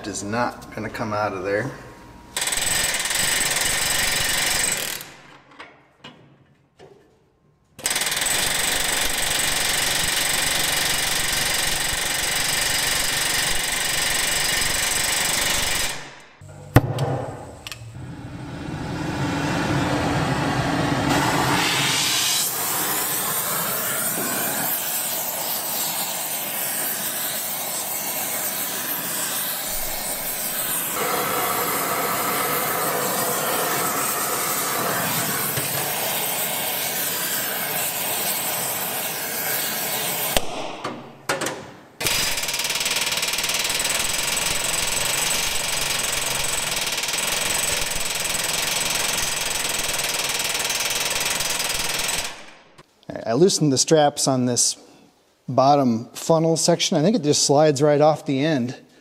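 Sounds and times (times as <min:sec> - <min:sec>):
sharp knock: 0:16.7 - 0:17.5
rough steady tool noise: 0:19.9 - 0:40.5.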